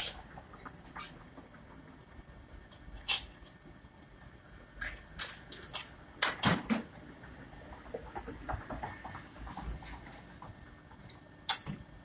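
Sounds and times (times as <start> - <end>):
sharp click: 11.5 - 11.8.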